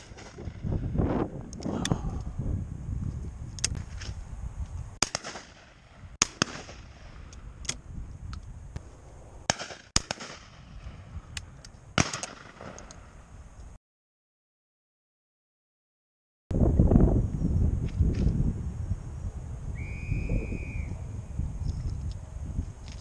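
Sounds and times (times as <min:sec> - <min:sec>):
shotgun shots with echo: 0:05.0 - 0:07.0, 0:09.5 - 0:10.7, 0:12.0 - 0:12.8.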